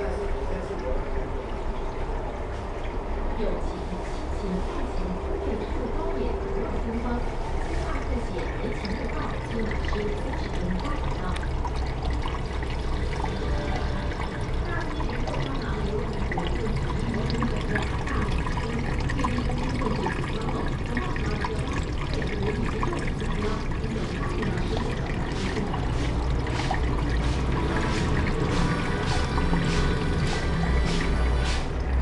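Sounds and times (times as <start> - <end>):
aquarium water trickling and splashing: 0.0 - 32.0.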